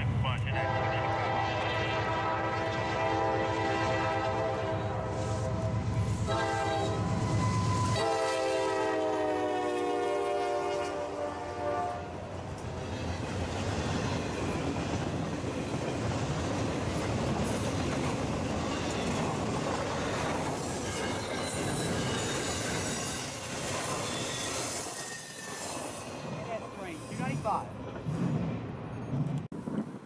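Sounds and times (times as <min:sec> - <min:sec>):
train rumble and wheel clatter: 0:00.0 - 0:30.0
high thin wheel squeal: 0:06.9 - 0:08.0, 0:20.6 - 0:26.2.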